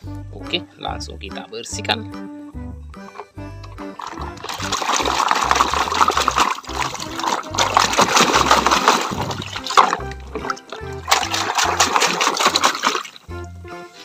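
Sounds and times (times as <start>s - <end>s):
background music with bass: 0.0s - 14.0s
water sloshing and splashing: 3.1s - 13.5s.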